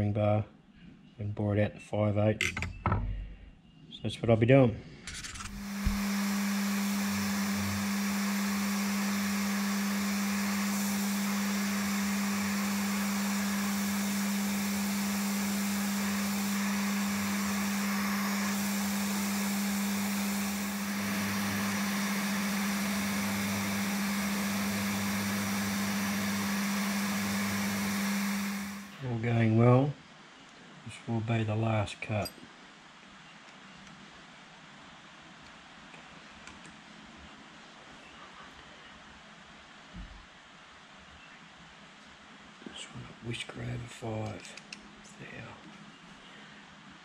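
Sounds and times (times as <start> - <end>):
drill bit cutting metal: 5.4 - 28.9
mill-drill humming: 5.4 - 29.0.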